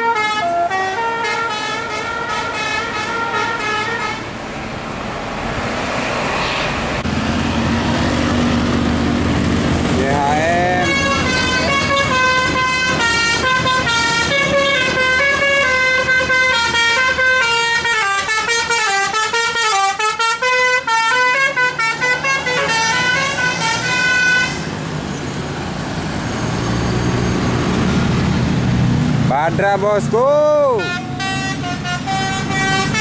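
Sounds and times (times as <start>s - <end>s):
musical air horn melody: 0.0s - 4.3s, 10.6s - 24.7s, 30.8s - 33.0s
traffic noise: 0.0s - 33.0s
engine noise: 0.4s - 33.0s.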